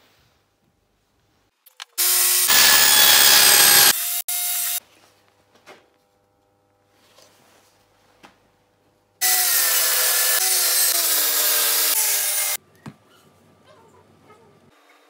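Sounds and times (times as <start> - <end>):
table saw cutting wood: 2.0 - 4.8, 9.2 - 12.6.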